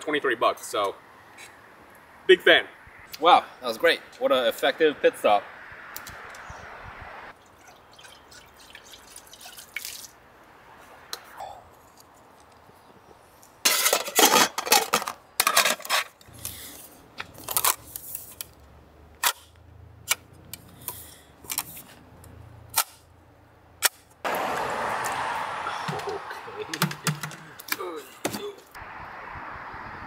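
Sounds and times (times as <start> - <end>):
cookware being handled: 13.7 - 16.1.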